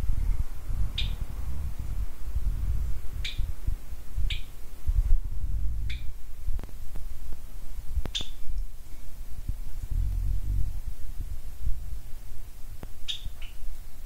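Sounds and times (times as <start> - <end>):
low uneven rumble: 0.0 - 14.0
budgerigar chirping: 4.3 - 4.5, 8.1 - 8.4, 13.1 - 13.6.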